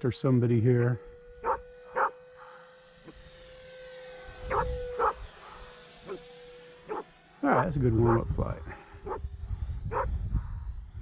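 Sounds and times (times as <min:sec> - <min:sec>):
model jet whining past: 0:00.0 - 0:11.0
dog barking: 0:01.4 - 0:02.1, 0:04.5 - 0:05.2.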